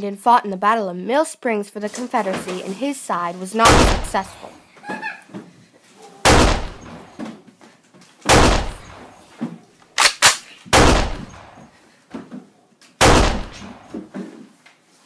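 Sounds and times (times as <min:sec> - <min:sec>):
gunshots: 0:03.6 - 0:04.5, 0:06.2 - 0:07.1, 0:08.3 - 0:09.2, 0:10.0 - 0:11.7, 0:13.0 - 0:13.9.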